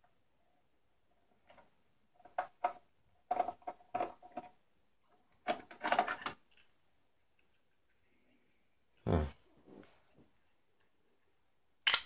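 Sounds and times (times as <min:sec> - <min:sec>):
plastic parts clicking and rattling: 0:01.4 - 0:06.8.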